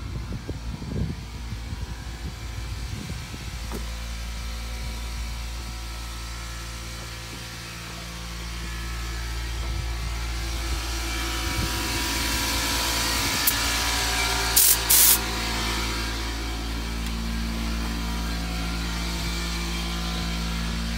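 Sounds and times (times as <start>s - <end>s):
motor humming: 0.0s - 20.9s
rumbling bumps on microphone: 2.4s - 5.8s.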